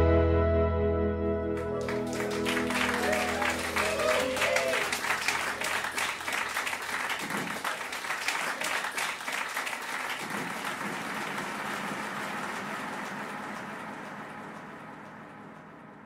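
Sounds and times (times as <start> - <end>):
audience applauding: 1.6 - 15.8.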